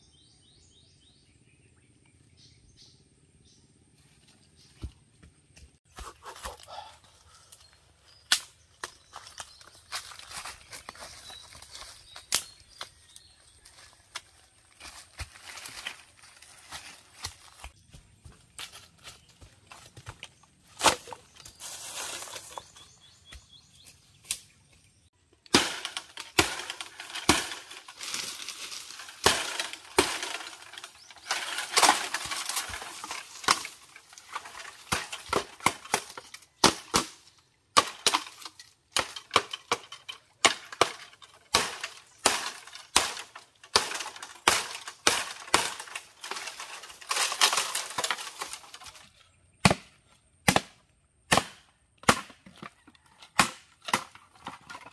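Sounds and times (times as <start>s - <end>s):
dry leaves and sticks rustling: 6.0s - 49.5s
bamboo pole dragged through brush: 20.6s - 23.2s, 25.8s - 36.3s
machete chopping bamboo: 20.8s - 21.2s, 25.4s - 49.0s, 49.6s - 54.8s.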